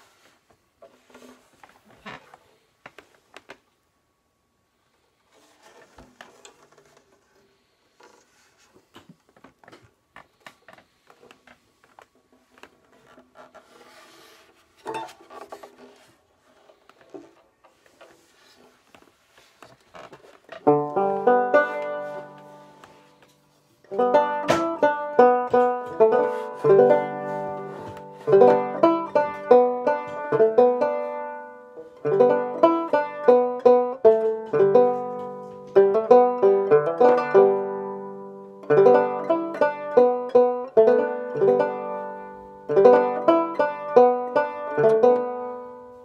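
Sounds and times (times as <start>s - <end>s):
clicks and rustles of handling: 5.3s - 13.7s
banjo strummed: 20.5s - 46.0s.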